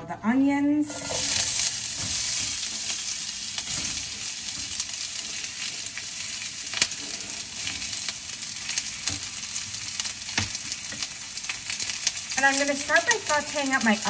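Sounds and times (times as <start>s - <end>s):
onions sizzling in oil: 0.8s - 14.0s.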